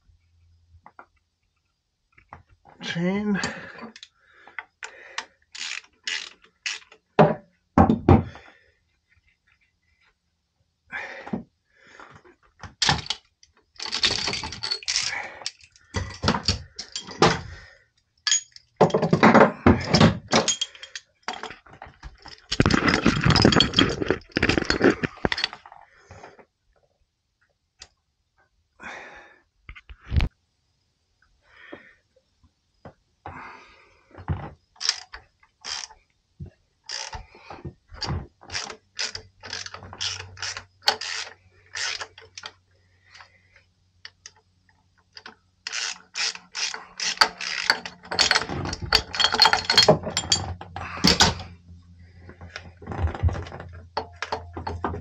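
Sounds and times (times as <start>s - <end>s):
ratchet wrench clicking: 5.5s - 7.0s, 13.8s - 15.8s, 34.8s - 35.9s, 36.9s - 37.2s, 38.5s - 42.5s, 45.1s - 50.3s
steel tools clinking: 13.8s - 17.5s, 18.3s - 19.2s, 19.8s - 21.6s, 22.2s - 25.6s, 45.2s - 51.6s, 54.0s - 55.0s.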